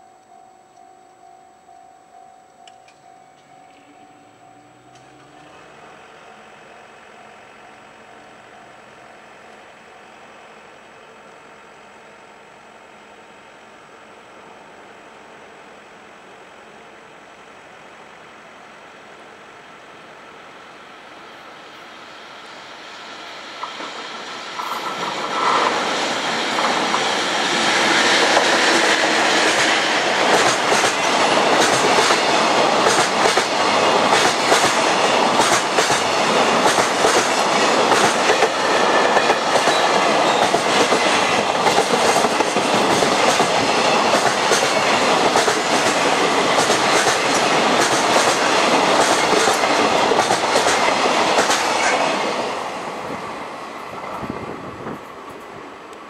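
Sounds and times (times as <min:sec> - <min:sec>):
train wheels on rails: 0:16.1 - 0:56.0
wheels clacking over rail joints: 0:23.6 - 0:52.5.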